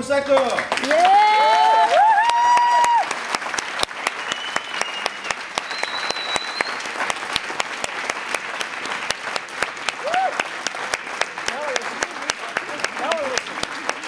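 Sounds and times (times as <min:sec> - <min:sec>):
audience applauding: 0:00.2 - 0:14.0
high whistle: 0:04.1 - 0:06.9.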